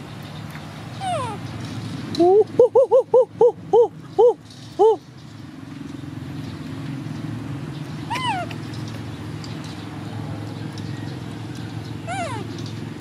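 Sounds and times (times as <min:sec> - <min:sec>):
baby monkey squealing: 0:01.0 - 0:01.4, 0:08.1 - 0:08.6, 0:12.0 - 0:12.5.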